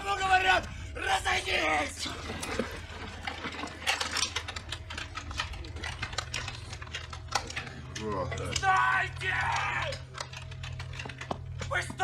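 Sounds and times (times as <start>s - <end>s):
low steady hum: 0.0s - 12.0s
weapons and gear clattering: 0.0s - 12.0s.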